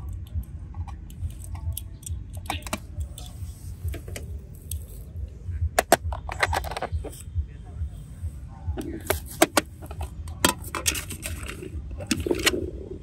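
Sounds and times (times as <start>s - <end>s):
toy car clicks and taps: 0.0s - 5.0s, 5.8s - 7.1s, 9.0s - 12.6s
low rumble: 11.6s - 13.0s.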